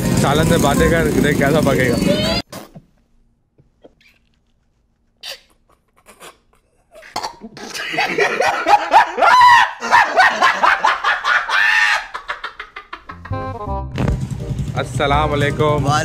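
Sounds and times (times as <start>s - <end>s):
man laughing loudly: 5.6s - 13.5s.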